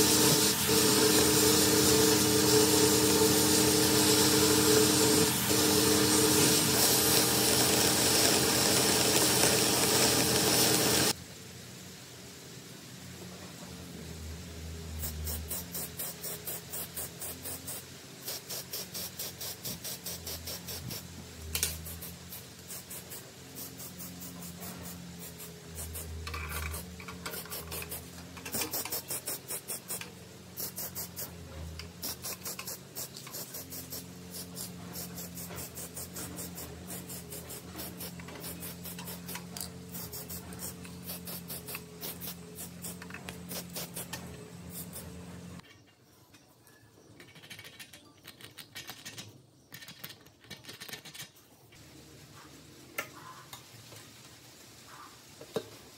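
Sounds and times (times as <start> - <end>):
metal parts scratching and rubbing: 21.6 - 46.4, 47.1 - 51.4.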